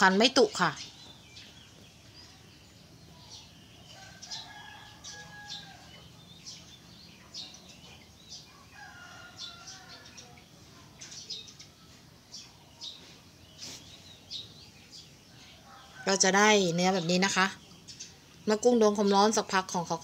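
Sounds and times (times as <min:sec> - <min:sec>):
small birds chirping: 0:00.0 - 0:20.0
rooster crowing: 0:03.9 - 0:06.0, 0:08.5 - 0:10.3.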